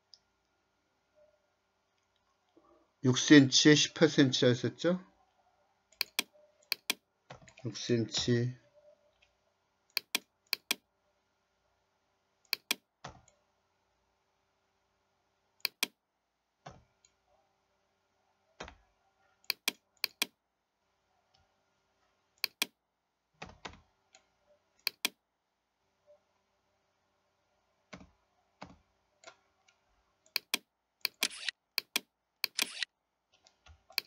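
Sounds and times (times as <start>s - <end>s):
mouse clicks: 6.0s - 7.6s, 9.9s - 10.8s, 12.5s - 13.4s, 15.6s - 16.0s, 19.5s - 20.3s, 22.4s - 22.8s, 24.2s - 25.2s, 29.2s - 32.9s.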